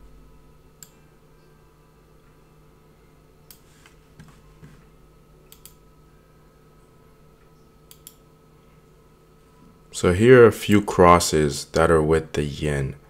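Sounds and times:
faint steady hum: 0.0 - 13.0
computer mouse clicks: 5.5 - 5.8, 7.9 - 8.2.

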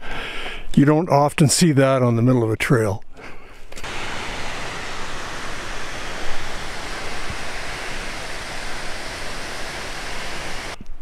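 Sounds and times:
fast-flowing water rushing: 3.8 - 10.8.

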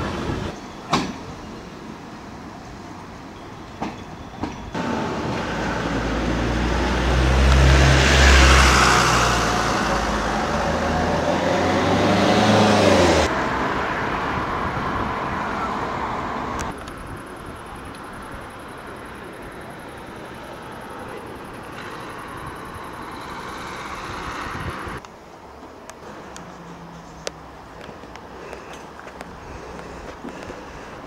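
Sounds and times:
vehicle passing close by: 4.8 - 16.8, 20.5 - 25.0.

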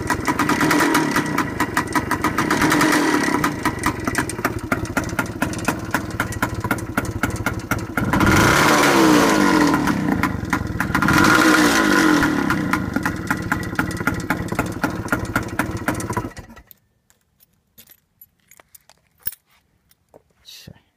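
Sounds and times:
motorcycle engine idling and revving: 0.0 - 16.7.

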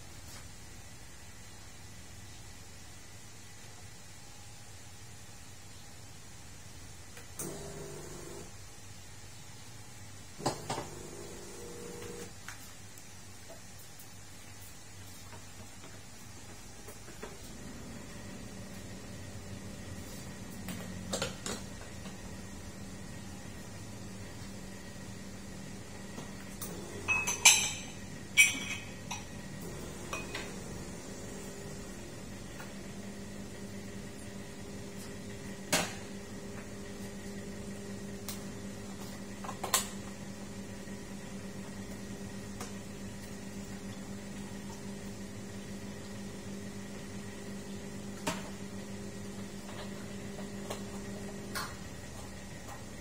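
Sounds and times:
espresso machine pump humming: 7.4 - 8.6, 10.4 - 12.4, 17.3 - 53.0
ceramic cup clinking on metal: 27.1 - 29.3.

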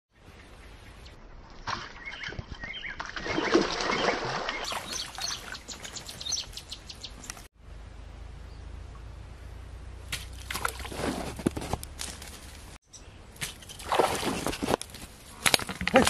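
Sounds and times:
steady low background noise: 6.6 - 10.3
fish thrashing and splashing: 13.4 - 14.8.

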